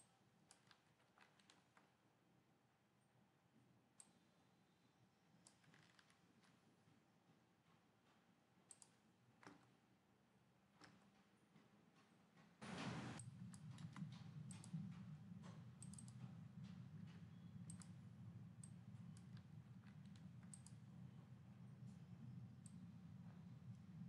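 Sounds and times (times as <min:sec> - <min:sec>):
computer mouse clicks: 0:00.0 - 0:01.9, 0:04.0 - 0:04.2, 0:05.4 - 0:06.2, 0:08.7 - 0:09.8, 0:13.2 - 0:14.8, 0:15.8 - 0:16.3, 0:17.6 - 0:18.0, 0:18.6 - 0:20.9
steady low hum: 0:12.6 - 0:24.0.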